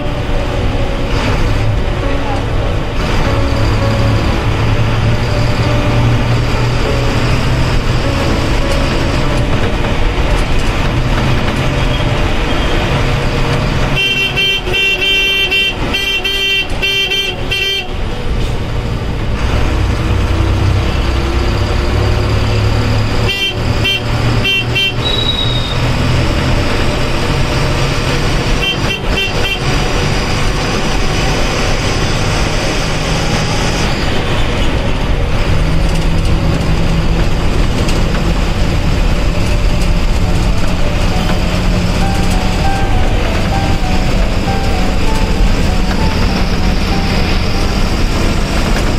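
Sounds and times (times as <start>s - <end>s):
pulsing horn toots: 0.0s - 18.4s, 22.1s - 26.1s, 27.3s - 35.0s, 40.0s - 48.9s
bus engine running: 0.0s - 48.9s
road noise: 0.0s - 48.9s.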